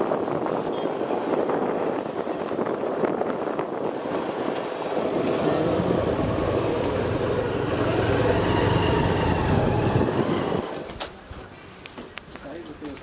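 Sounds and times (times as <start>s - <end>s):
road and wind noise: 0.0s - 13.0s
motor scooter engine hum: 4.2s - 10.9s.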